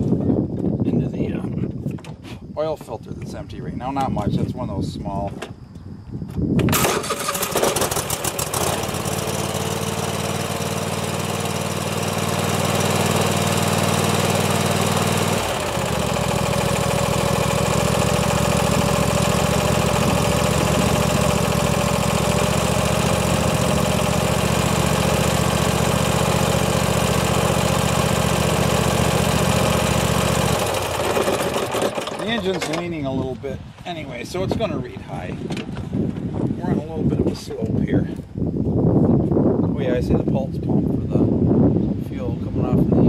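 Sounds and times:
lawn tractor engine running: 0:06.6 - 0:33.0.

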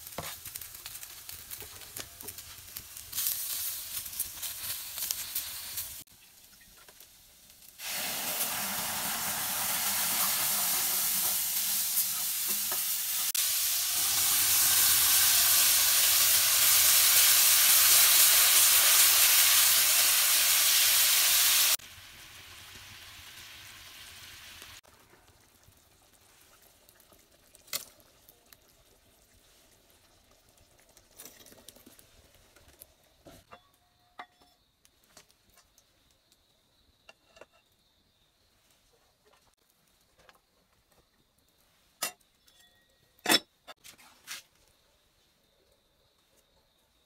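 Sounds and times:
curry sizzling loudly in a pan: 0:00.0 - 0:30.9.

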